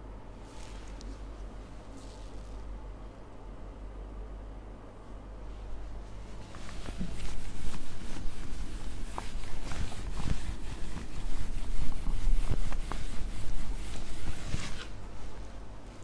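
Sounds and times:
eraser rubbing on whiteboard: 0:06.4 - 0:15.0.

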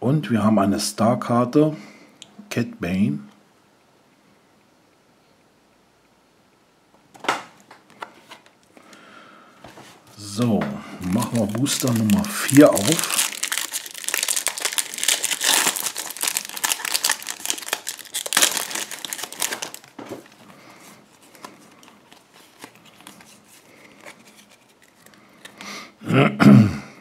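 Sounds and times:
cards clicking and rustling: 0:10.4 - 0:25.8
foil wrapper crinkling and tearing: 0:11.0 - 0:25.7.

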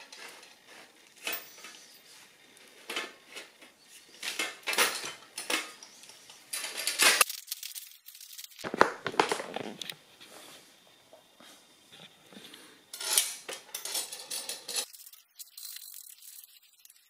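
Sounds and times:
metal nuts and washers clinking: 0:00.0 - 0:02.2, 0:02.8 - 0:08.7, 0:12.9 - 0:17.0.

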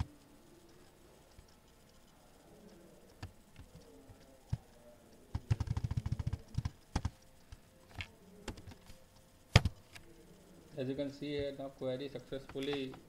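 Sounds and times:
keyboard typing: 0:00.0 - 0:10.4.

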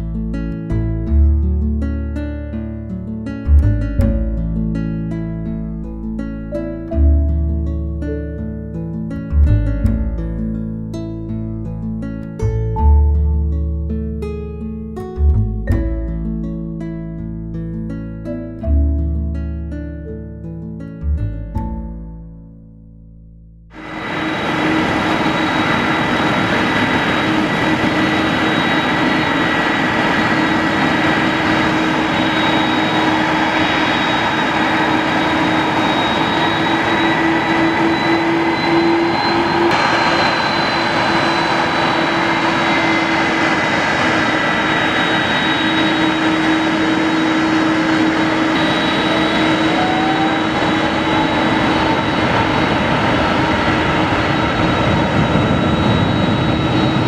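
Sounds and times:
jet engines running: 0:23.8 - 0:57.0.

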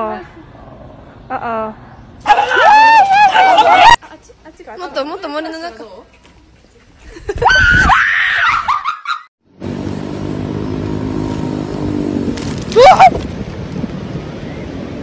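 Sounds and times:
person screaming: 0:12.7 - 0:13.2.

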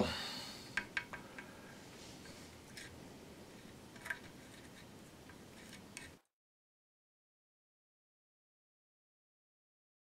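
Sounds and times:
low background hiss: 0:00.0 - 0:06.3.

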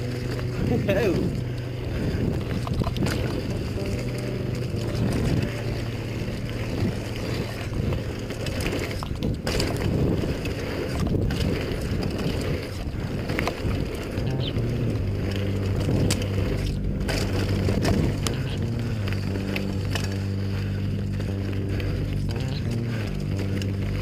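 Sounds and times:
bike tyres rumbling on dirt: 0:00.0 - 0:24.0
bike knocking over bumps: 0:06.6 - 0:13.8.

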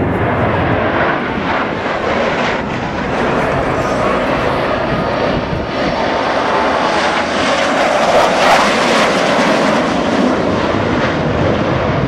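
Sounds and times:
jet fighters flying past: 0:00.0 - 0:12.0.

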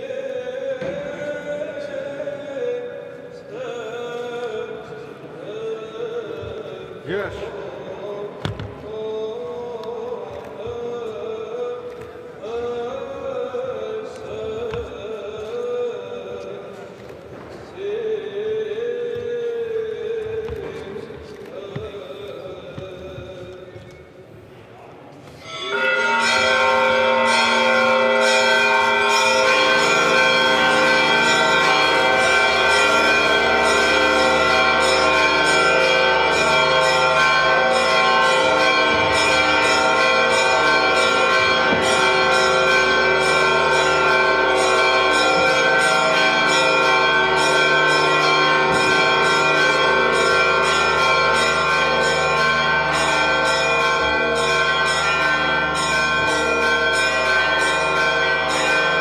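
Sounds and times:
church bells pealing: 0:25.4 - 0:59.0.

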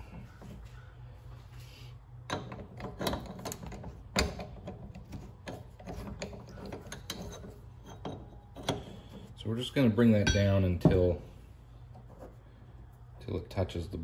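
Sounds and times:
metal parts clicking and knocking: 0:02.2 - 0:09.1.

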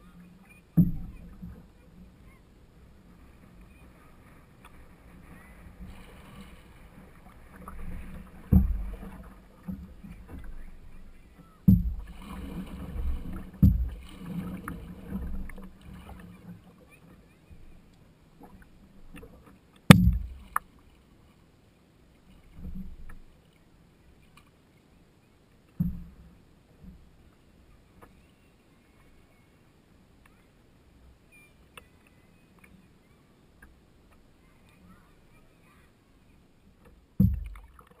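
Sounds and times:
water lapping against canoe hull: 0:00.0 - 0:21.5, 0:22.1 - 0:24.6, 0:25.6 - 0:28.3, 0:36.6 - 0:38.0
dull thumps: 0:08.5 - 0:10.5, 0:11.7 - 0:12.2, 0:13.0 - 0:14.1, 0:19.9 - 0:20.6, 0:37.2 - 0:37.7
sharp knock: 0:19.9 - 0:20.4.

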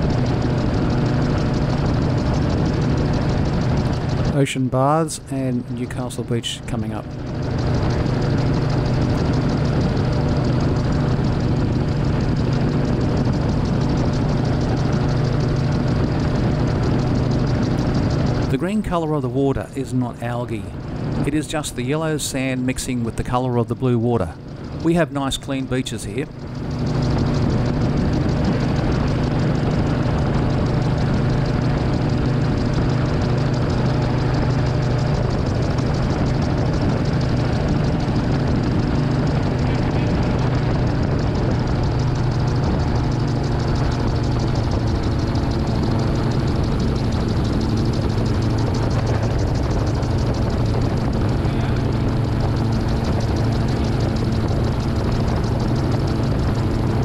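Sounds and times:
aircraft engine and propeller drone: 0:00.0 - 0:57.0.

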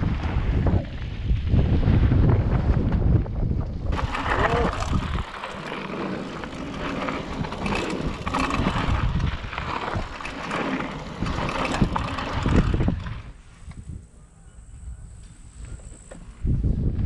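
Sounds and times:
bike knocking and rattling: 0:00.0 - 0:14.0
wind buffeting microphone: 0:00.0 - 0:17.0
tyres crunching over gravel: 0:03.9 - 0:13.2.

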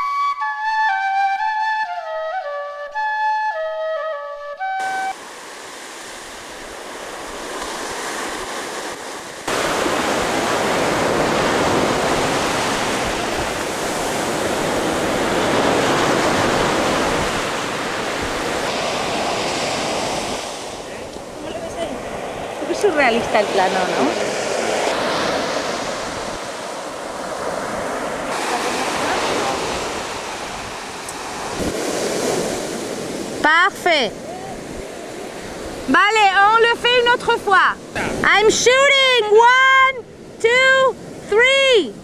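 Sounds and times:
flute melody: 0:00.0 - 0:05.2
ocean surf washing over sand: 0:04.8 - 0:42.0.

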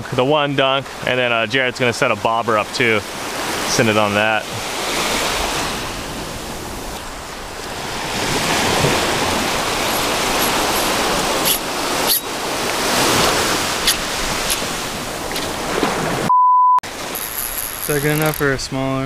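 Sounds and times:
small waves washing on sand: 0:01.8 - 0:16.2.

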